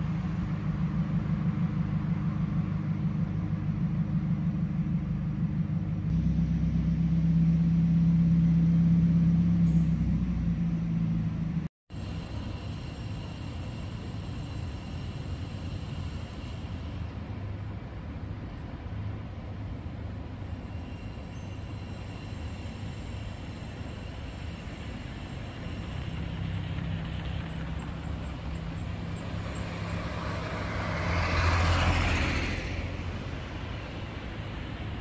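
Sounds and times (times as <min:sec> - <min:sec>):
heavy engine drone: 0:00.0 - 0:35.0
road traffic hum: 0:00.0 - 0:35.0
vehicle passing close: 0:26.5 - 0:35.0.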